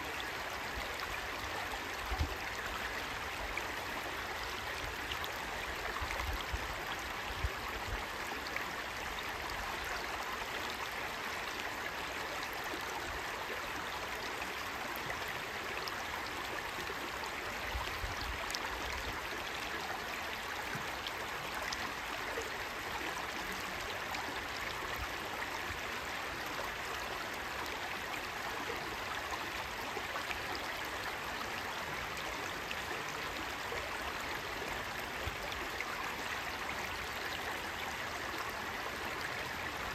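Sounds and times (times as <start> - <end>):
stream babbling over stones: 0.0 - 39.9.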